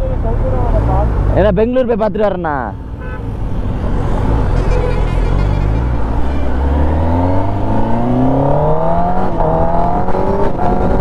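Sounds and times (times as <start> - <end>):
road and wind noise: 0.0 - 11.0
motorcycle engine accelerating: 3.6 - 11.0.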